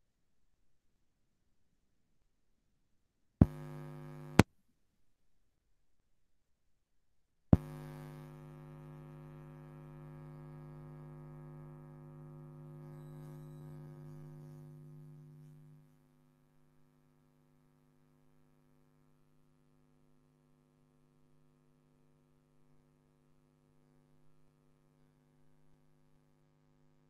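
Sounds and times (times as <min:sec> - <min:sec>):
electrical hum: 0:03.4 - 0:04.4, 0:07.6 - 0:16.0.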